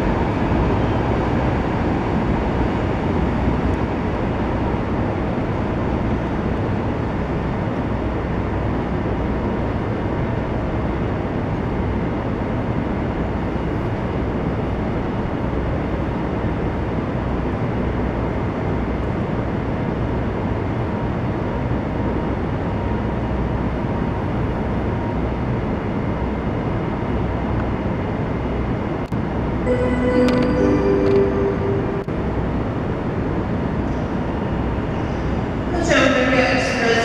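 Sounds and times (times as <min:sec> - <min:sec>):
faint steady whine: 0:00.0 - 0:37.0.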